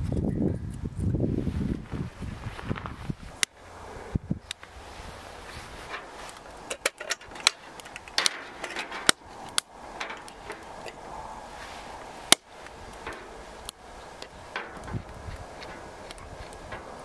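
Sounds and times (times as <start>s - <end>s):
hard objects clicking and knocking: 5.9s - 11.0s.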